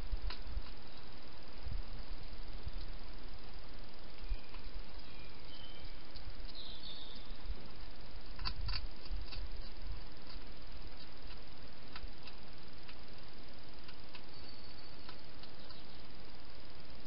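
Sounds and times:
background hiss: 0.0s - 17.0s
hedgehog chewing clicks: 0.3s - 0.8s, 8.4s - 15.8s.

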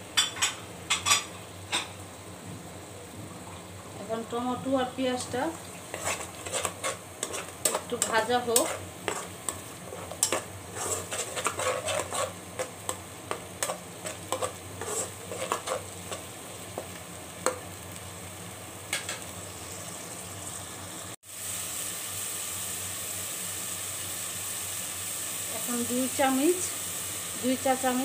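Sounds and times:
food sizzling in oil: 0.0s - 28.0s
spatula scraping a pot: 5.8s - 16.3s.

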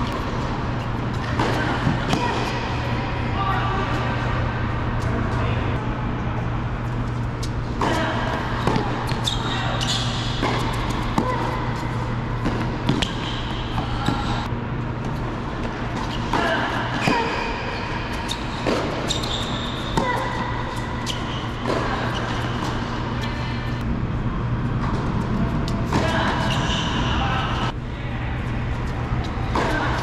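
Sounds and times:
steady low hum: 0.0s - 30.0s
sneakers squeaking on court: 7.2s - 14.5s, 16.0s - 23.6s
tennis ball bouncing: 7.4s - 14.4s
racket striking tennis ball: 7.8s - 11.8s.

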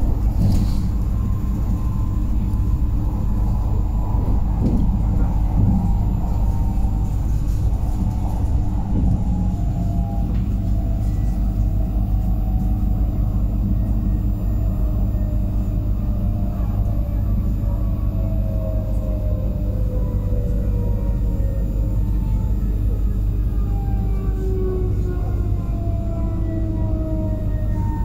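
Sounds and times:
electric train rumbling: 0.0s - 28.0s
faint whine falling in pitch: 8.0s - 28.0s.

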